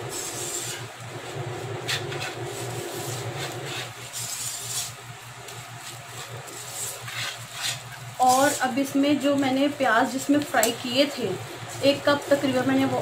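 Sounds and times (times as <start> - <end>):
whisk scraping in pan: 0.0 - 9.0
steady low hum: 0.0 - 13.0.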